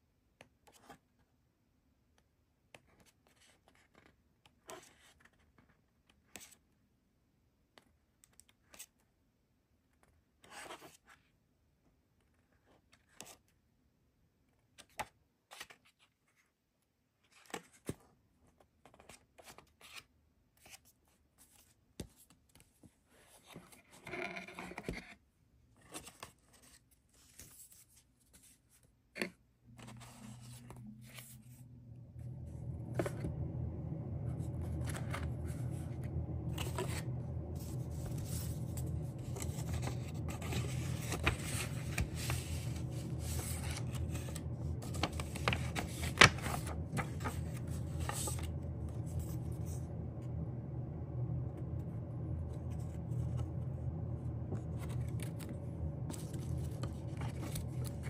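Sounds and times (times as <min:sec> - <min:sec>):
paper and packaging rustling: 0:36.5 - 0:49.4.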